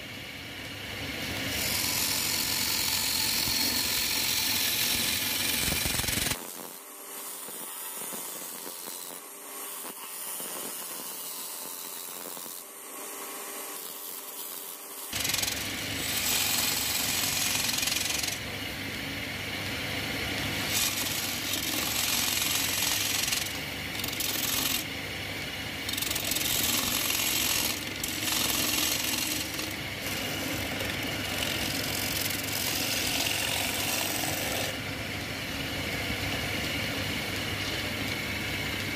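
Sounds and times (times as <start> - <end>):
lathe running: 1.2 - 6.4, 14.3 - 18.6, 20.6 - 24.9, 25.8 - 38.9
turning tool scraping wood: 25.9 - 34.8.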